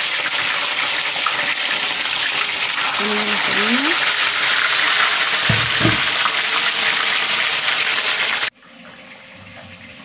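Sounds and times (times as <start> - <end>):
fish deep-frying sizzle: 0.0 - 9.8.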